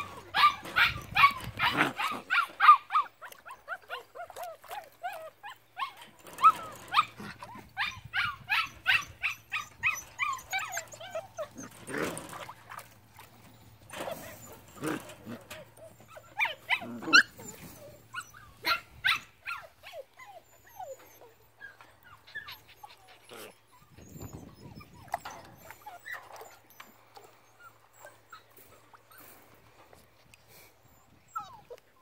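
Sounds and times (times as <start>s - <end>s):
puppy whimpering and yipping: 0.0s - 12.8s, 13.9s - 29.2s, 30.8s - 32.0s
water sloshing: 9.7s - 18.2s.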